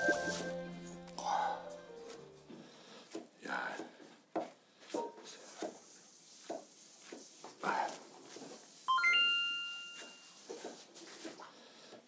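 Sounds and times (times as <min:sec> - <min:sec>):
bright ringing: 0:00.0 - 0:02.4, 0:08.9 - 0:10.4.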